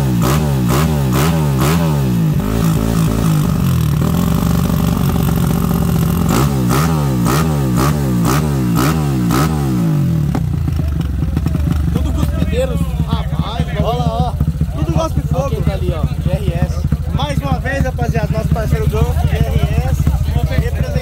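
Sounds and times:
exhaust crack: 0.0 - 21.0
motorcycle engine revving: 0.0 - 21.0.

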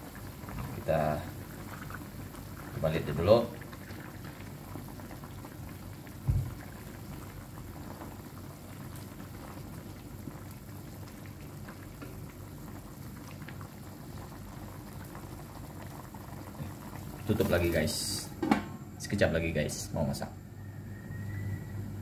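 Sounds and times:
soup bubbling in a wok: 0.0 - 17.8
low thump: 6.2 - 6.6.

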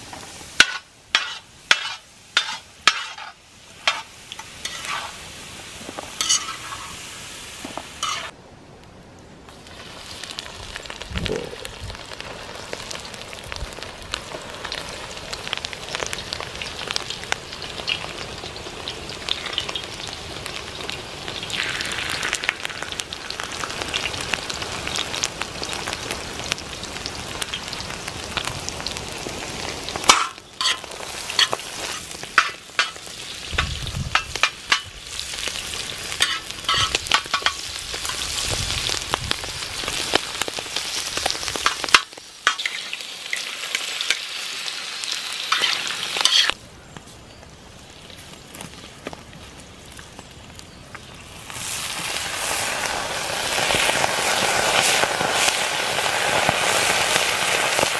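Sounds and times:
meat sizzling in hot oil: 0.0 - 8.4, 9.5 - 46.6, 47.3 - 57.9
metal spatula scraping pan: 0.6 - 5.2, 6.2 - 7.0, 8.0 - 8.3, 30.1 - 33.0, 36.2 - 37.6, 45.5 - 46.6.

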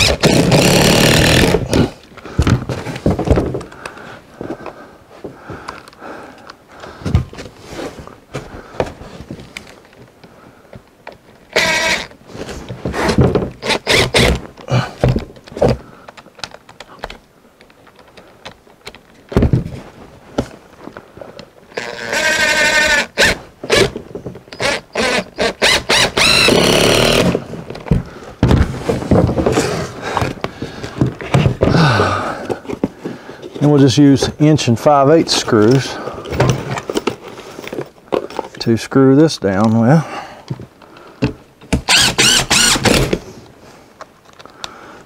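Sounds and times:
impact driver driving screws: 0.0 - 1.8, 11.5 - 12.1, 13.0 - 14.4, 21.7 - 23.9, 24.5 - 27.4, 41.7 - 43.2.

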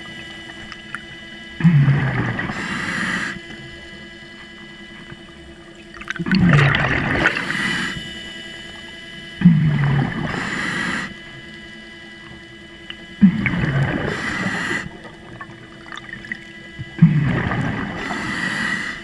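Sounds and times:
faint motor whine: 0.0 - 19.0
regulator groan: 0.0 - 19.0
exhaled bubbles rushing: 1.6 - 2.6, 5.7 - 7.8, 9.4 - 10.4, 13.1 - 18.2.

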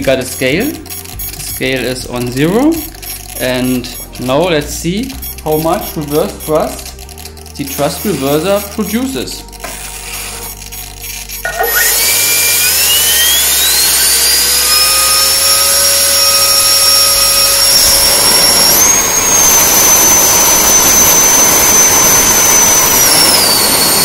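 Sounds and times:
electric ducted fan whine: 0.0 - 9.5, 10.2 - 24.0.

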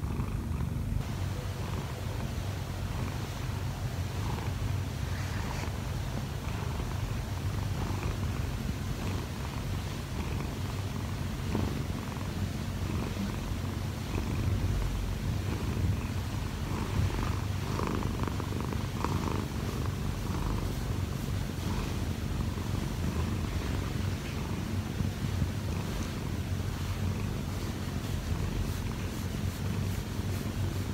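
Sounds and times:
cat purring: 0.0 - 30.9.

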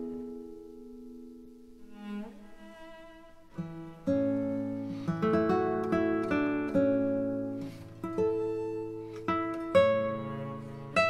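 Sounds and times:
plucked acoustic guitar: 3.5 - 11.0.

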